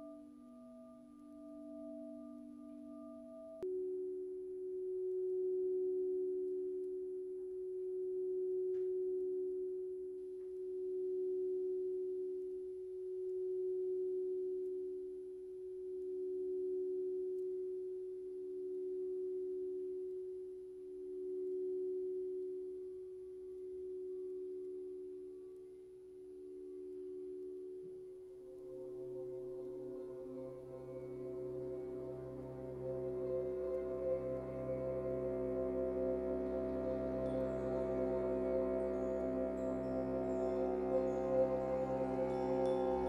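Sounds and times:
pure humming tones: 28.2 - 43.0.

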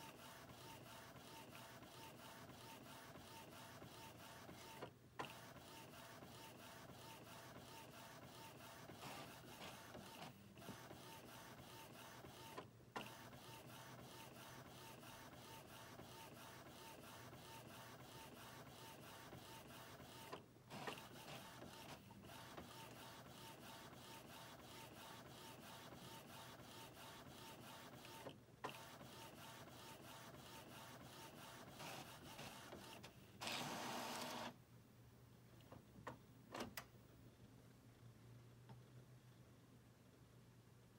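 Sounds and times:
printer motor whirr: 25.7 - 34.6.

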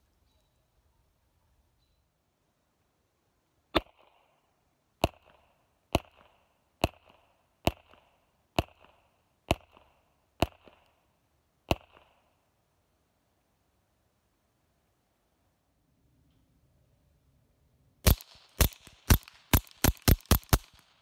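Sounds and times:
suppressed pistol shots: 3.8 - 4.2, 18.0 - 21.0.

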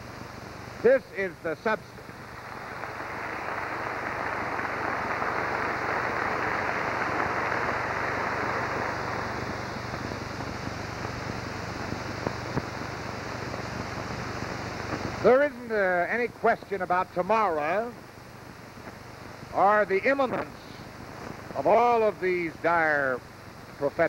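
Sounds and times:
audience applauding: 2.4 - 9.6.

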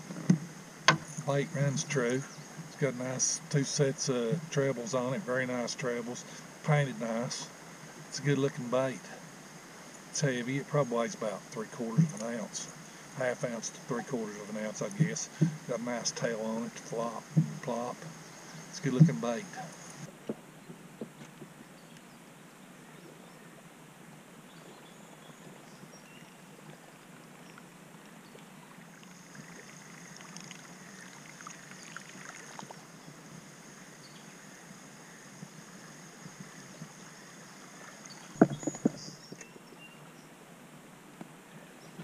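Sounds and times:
thin high steady buzz: 0.0 - 41.9
soft hiss of river water: 0.0 - 42.0
sharp knocks: 0.1 - 1.1.

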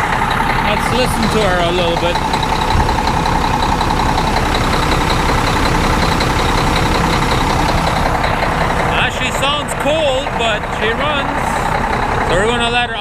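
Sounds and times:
diesel truck engine idling: 0.0 - 13.0.

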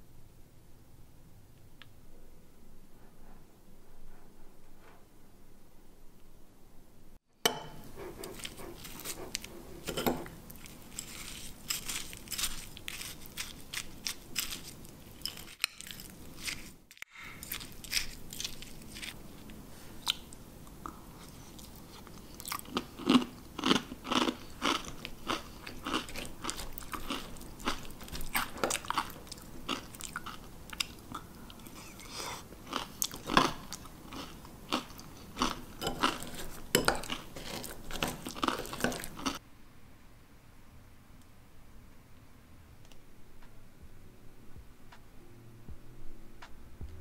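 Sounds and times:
spoon scraping ceramic bowl: 7.5 - 16.8, 35.8 - 39.2
crunchy chewing: 8.0 - 39.4.

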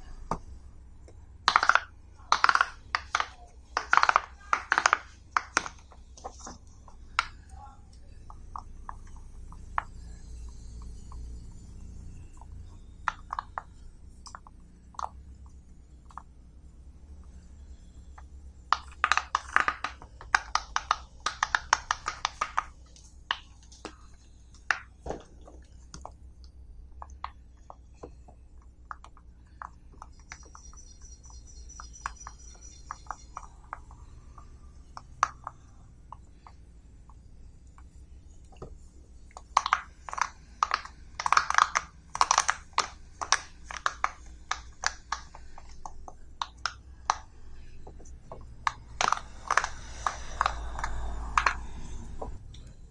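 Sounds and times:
fidget toy bubbles popping: 1.4 - 7.5, 8.2 - 16.4, 17.6 - 52.4.

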